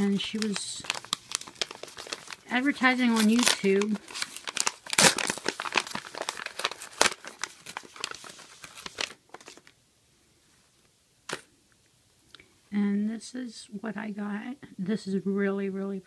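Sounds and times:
paper bag and tissue rustling: 0:00.0 - 0:09.8
paper packaging crinkling and tearing: 0:00.0 - 0:09.8.

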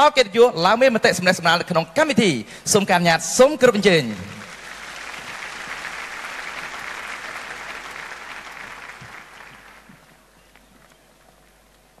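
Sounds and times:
audience applauding: 0:04.1 - 0:12.0.

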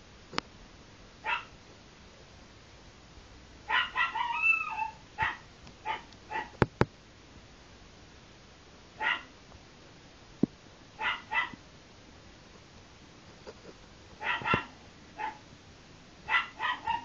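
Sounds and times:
dog barking in yaps: 0:01.2 - 0:01.5, 0:03.6 - 0:06.6, 0:09.0 - 0:09.4, 0:11.0 - 0:11.6, 0:14.2 - 0:15.4, 0:16.2 - 0:17.0.

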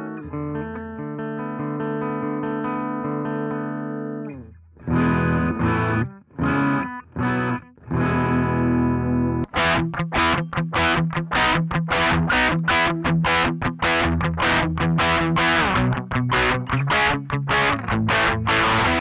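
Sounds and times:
electric guitar chords: 0:00.0 - 0:19.0.

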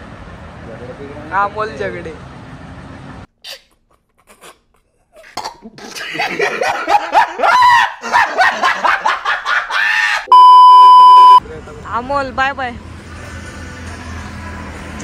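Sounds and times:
man laughing hard: 0:05.7 - 0:10.2.

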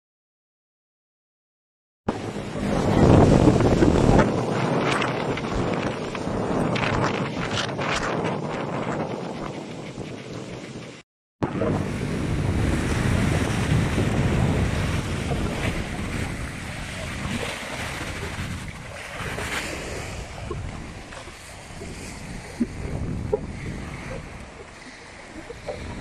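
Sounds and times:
waves washing and breaking: 0:02.1 - 0:26.0
wind buffeting microphone: 0:02.1 - 0:26.0.

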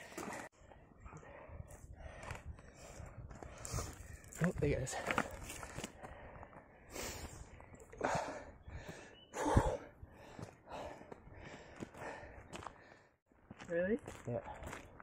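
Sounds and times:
heavy breathing: 0:00.0 - 0:13.2
footsteps on gravel: 0:03.3 - 0:06.7, 0:10.3 - 0:15.0.

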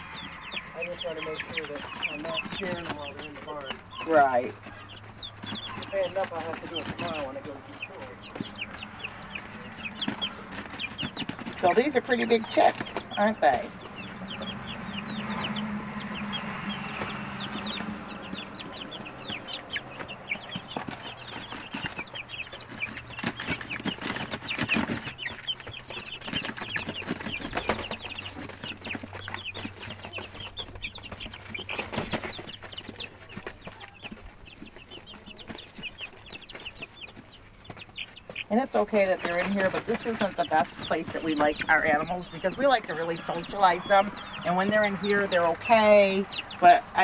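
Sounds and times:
chicks peeping: 0:00.0 - 0:47.0.

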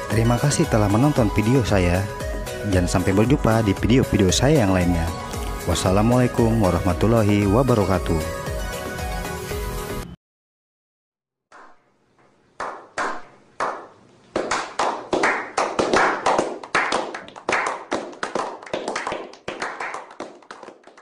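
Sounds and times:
group of people clapping: 0:12.6 - 0:21.0.

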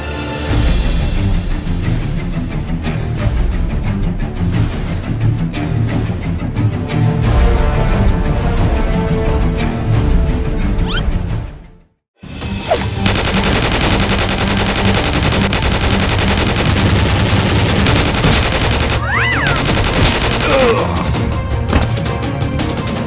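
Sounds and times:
background music: 0:00.0 - 0:23.0
automatic gunfire sound effect: 0:12.7 - 0:20.9.

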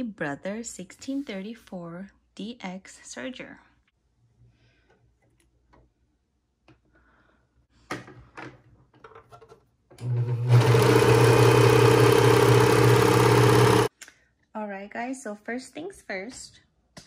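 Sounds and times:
serger sewing machine running: 0:10.0 - 0:13.9.

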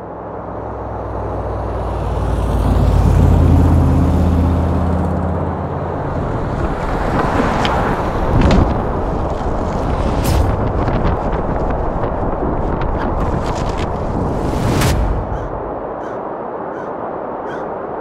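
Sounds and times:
low rumble: 0:05.4 - 0:18.0.

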